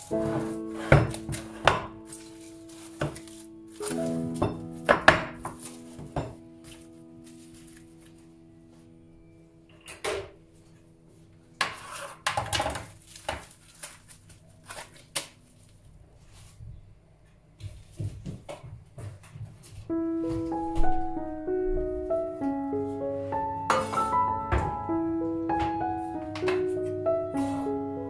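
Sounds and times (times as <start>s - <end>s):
background music: 0.0s - 11.9s, 19.9s - 28.0s
cling film rustling: 0.5s - 8.3s, 12.0s - 15.8s.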